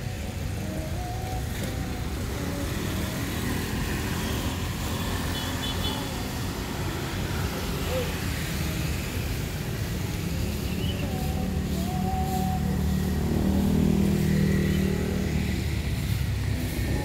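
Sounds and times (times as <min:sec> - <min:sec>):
traffic on a wet road: 0:00.0 - 0:17.0
faint voices: 0:06.1 - 0:17.0.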